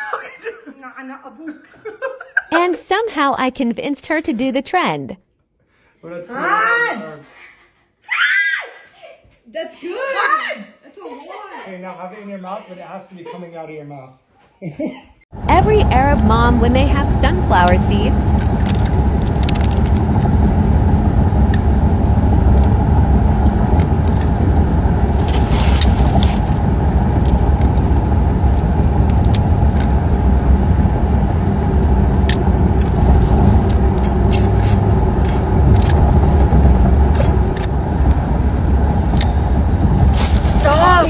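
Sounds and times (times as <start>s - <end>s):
car cabin road rumble: 15.3s - 41.0s.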